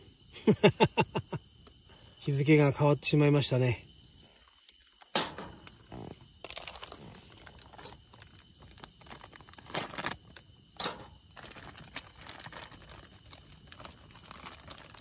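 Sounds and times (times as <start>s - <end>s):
small crackles: 3.6s - 15.0s
crinkling and rustling: 5.3s - 15.0s.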